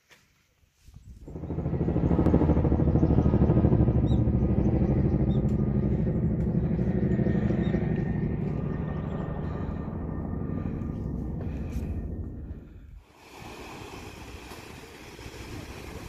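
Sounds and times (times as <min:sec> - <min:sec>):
helicopter flying overhead: 0:01.2 - 0:13.1.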